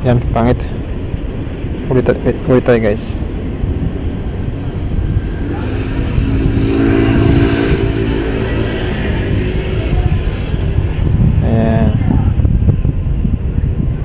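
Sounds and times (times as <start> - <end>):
low rumble: 0.0 - 14.0
vehicle engine passing: 1.4 - 12.2.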